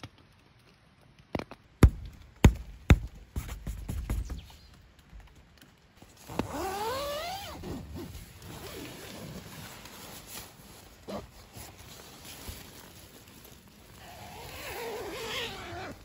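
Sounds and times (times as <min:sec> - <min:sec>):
fabric rustling: 0:06.0 - 0:16.0
zipper pulled open: 0:06.2 - 0:10.4, 0:11.0 - 0:11.8, 0:14.0 - 0:16.0.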